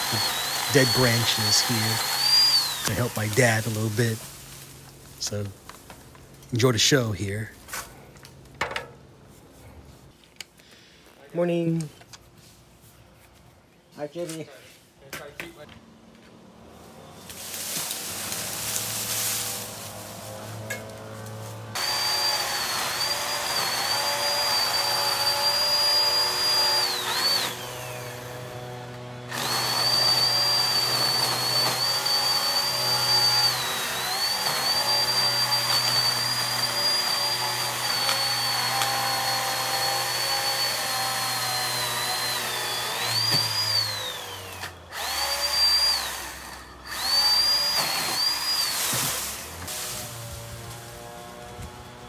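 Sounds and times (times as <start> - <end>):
electric saw cutting wood: 0.0 - 4.6, 17.2 - 52.0.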